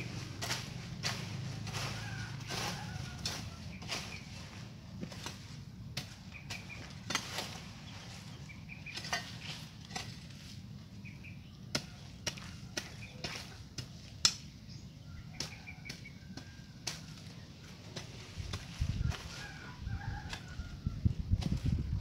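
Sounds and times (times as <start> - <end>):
hoe chopping into soil: 5.0 - 7.7.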